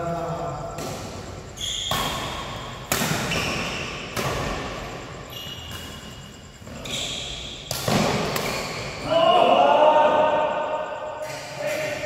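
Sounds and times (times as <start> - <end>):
rackets hitting shuttlecock: 0.8 - 4.9, 6.7 - 9.0
shoes squeaking on court: 1.3 - 9.0.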